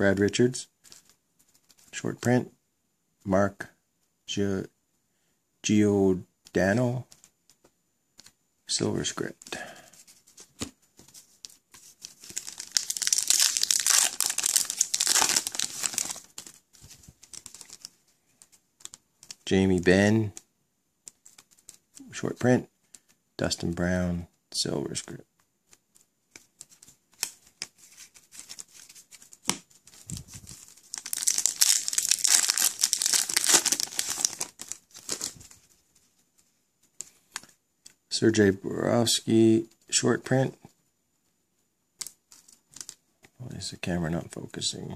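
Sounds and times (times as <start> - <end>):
foil wrapper crinkling: 12.1 - 17.9, 29.9 - 35.6.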